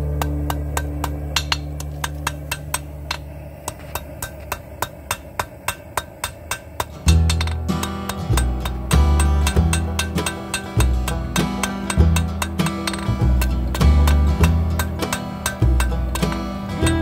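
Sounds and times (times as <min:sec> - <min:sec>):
guitar music: 0:00.0 - 0:03.1, 0:07.0 - 0:17.0
hammer striking metal: 0:00.0 - 0:17.0.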